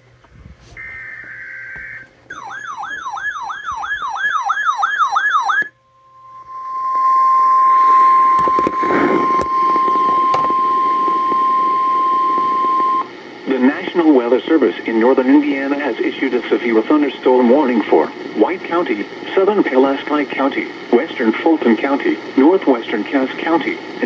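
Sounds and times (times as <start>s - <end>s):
radio static: 0.8s - 2.1s, 7.6s - 24.0s
warbling radio alarm: 0.8s - 13.8s
steady warning tone: 0.8s - 24.0s.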